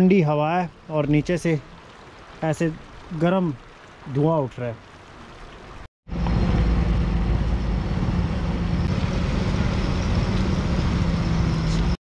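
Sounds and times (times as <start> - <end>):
motorcycle engine droning: 6.1 - 12.0.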